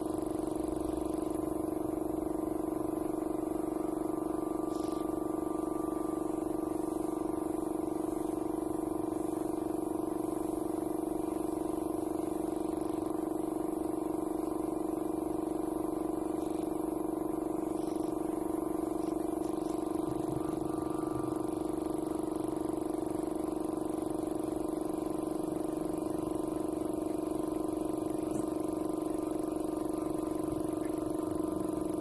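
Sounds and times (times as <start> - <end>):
air compressor running: 0.0 - 32.0.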